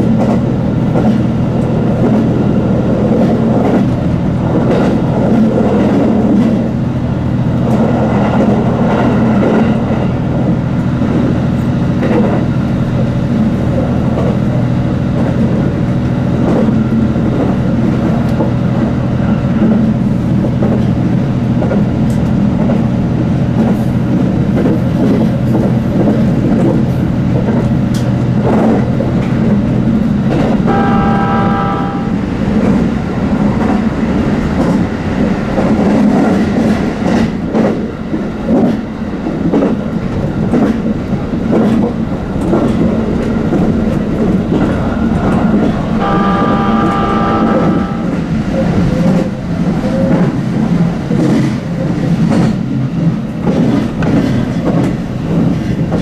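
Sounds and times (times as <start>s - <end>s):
train low drone: 0.0s - 56.0s
chord of steady tones: 30.7s - 32.4s, 46.0s - 48.4s.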